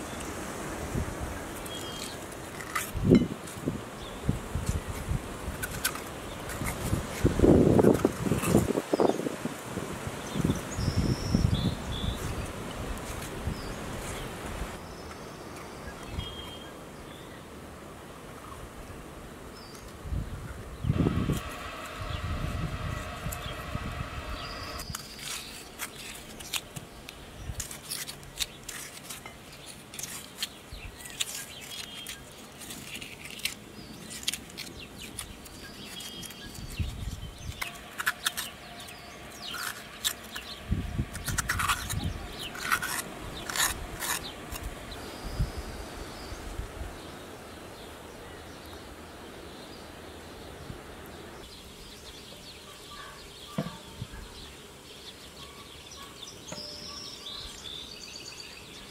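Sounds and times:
knife cutting and scraping vegetables: 1.6 - 3.7, 4.6 - 8.9, 22.9 - 45.0
birds chirping: 20.8 - 27.5, 33.4 - 58.9.

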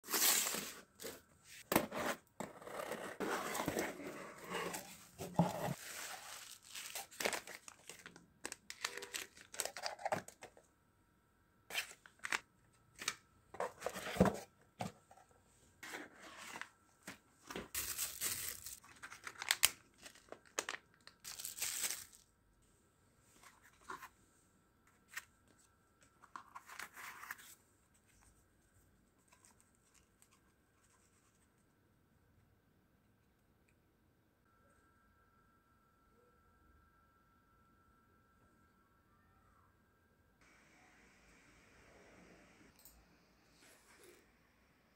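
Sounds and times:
packaging tearing and crinkling: 5.8 - 10.3, 17.7 - 22.2.

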